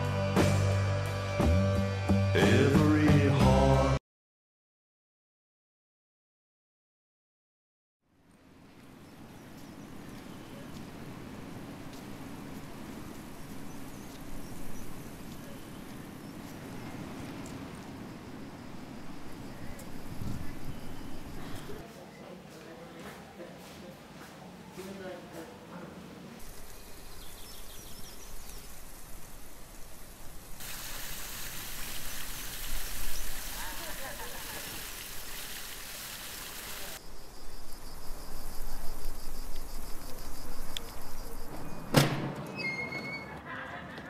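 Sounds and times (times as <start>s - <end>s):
distant traffic rumble: 8.3s - 23.6s
faint bird chirps: 19.4s - 21.8s
fountain water splashing: 26.4s - 37.0s.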